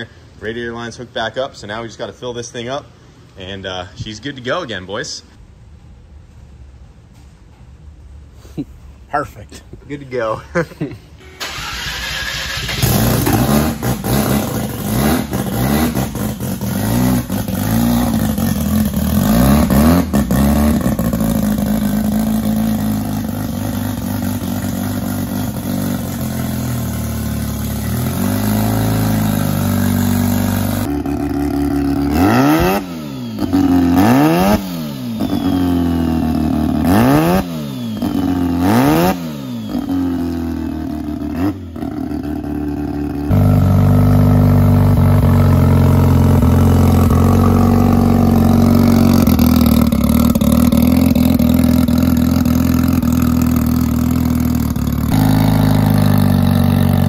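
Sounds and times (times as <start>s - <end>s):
rotary engine revving: 11.4s - 53.8s, 54.8s - 57.0s.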